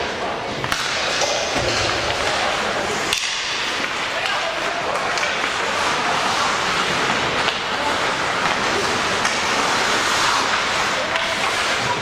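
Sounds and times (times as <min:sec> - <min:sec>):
indistinct voices: 0:00.0 - 0:12.0
spectators din: 0:00.3 - 0:12.0.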